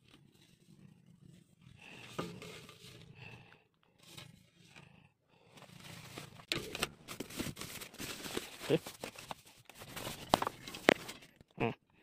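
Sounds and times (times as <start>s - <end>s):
plastic packaging crinkling: 6.4s - 11.4s.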